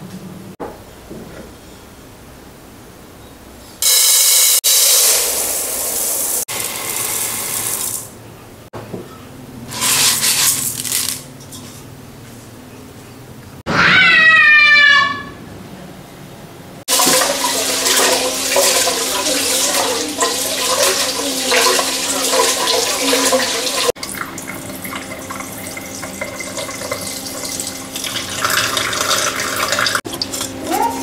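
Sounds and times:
water splashing into sink: 16.9 - 30.5.

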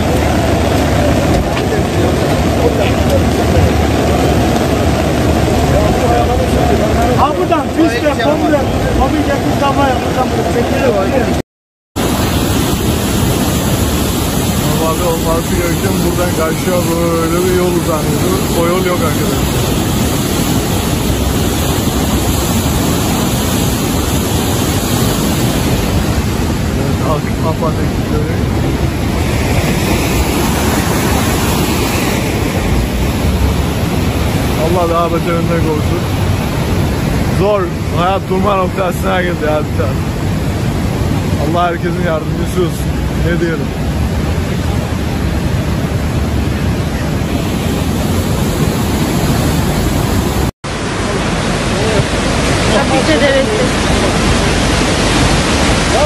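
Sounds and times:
river rushing: 0.0 - 11.4, 12.0 - 56.0.

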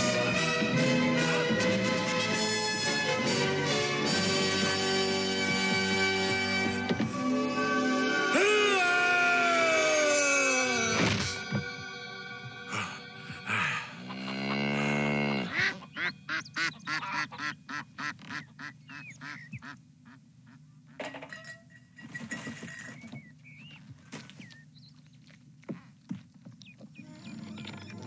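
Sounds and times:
long low animal call: 12.7 - 15.9
ducks quacking: 12.7 - 21.0.

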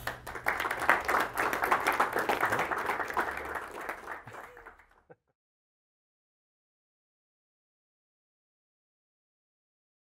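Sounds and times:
audience applauding: 0.0 - 5.2.

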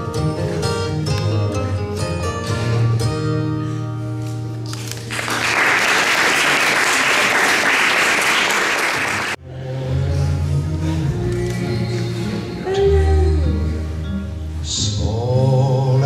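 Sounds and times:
guitar music: 0.0 - 5.1
guests applauding: 4.8 - 9.4.

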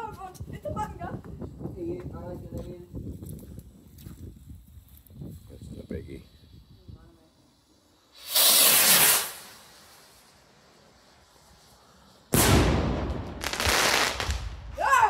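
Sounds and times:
firework rocket hissing: 4.3 - 15.0
firework fizzing: 5.3 - 15.0
firework bang: 8.2 - 9.8, 12.3 - 14.8.

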